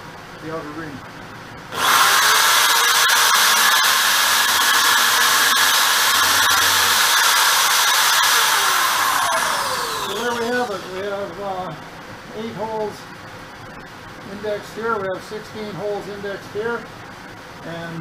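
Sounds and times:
electric drill whining: 1.7s - 11.0s.

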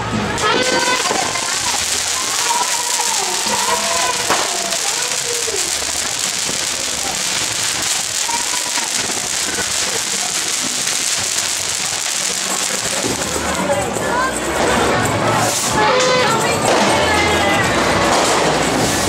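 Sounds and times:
firework fountain hissing: 0.0s - 16.0s, 16.7s - 19.0s.

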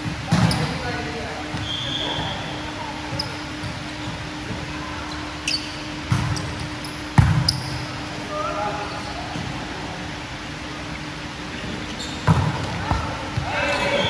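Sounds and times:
shoe squeaks: 0.3s - 0.9s, 1.5s - 4.4s, 5.0s - 8.0s, 11.6s - 12.3s.

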